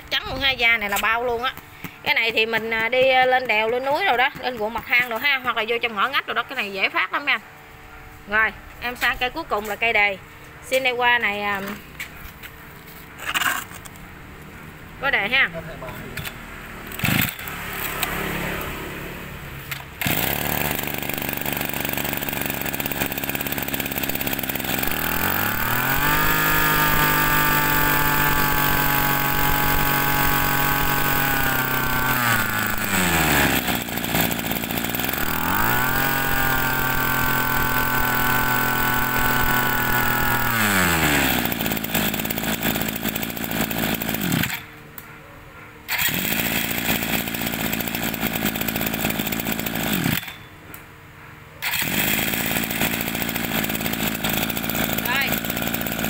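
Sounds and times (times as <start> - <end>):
brush cutter engine revving: 15.0 - 44.8, 45.9 - 50.5, 51.6 - 56.0.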